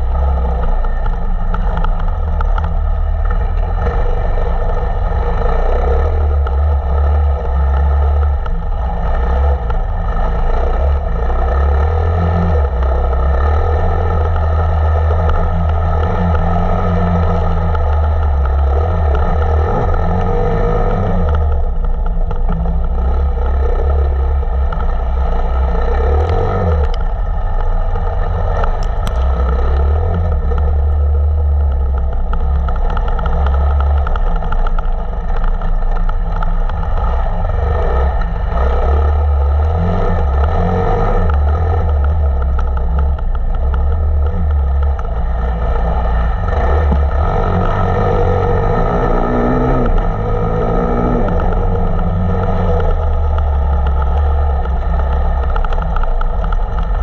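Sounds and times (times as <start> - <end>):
motorcycle engine under throttle: 0.0 - 57.0.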